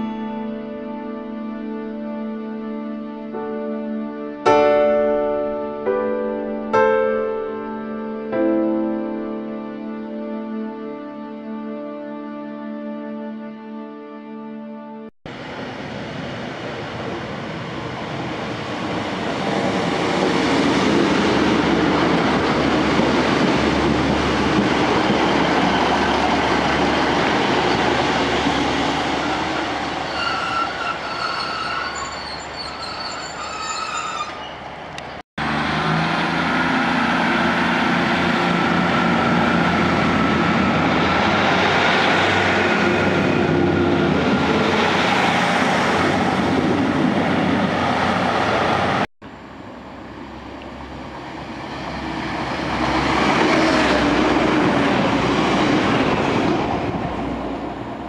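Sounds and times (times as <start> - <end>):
diesel train engine: 15.3 - 58.0
train wheel squeal: 29.2 - 34.8
diesel engine whine: 34.9 - 44.7.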